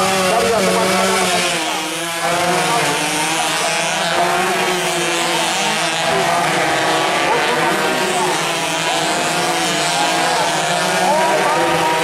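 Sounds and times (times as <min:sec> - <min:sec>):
motorcycle engines buzzing at high revs: 0:00.0 - 0:12.0.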